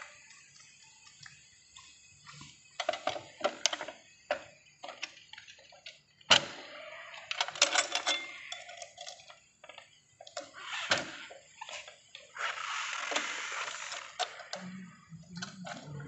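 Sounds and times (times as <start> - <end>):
metal tools clinking and knocking: 7.2 - 10.4.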